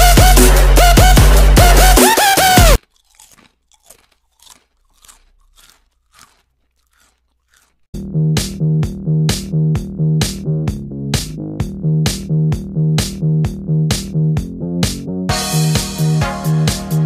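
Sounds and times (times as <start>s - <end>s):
drum machine beat: 0.0s - 2.8s, 8.0s - 17.0s
electronic dance music: 0.0s - 2.8s
faint crunching snaps: 2.8s - 7.9s.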